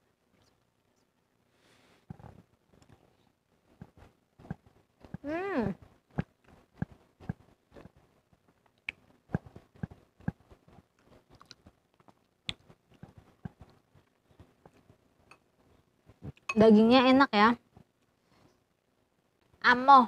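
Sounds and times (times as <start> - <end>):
chewing and mouth sounds: 6.1 - 15.0.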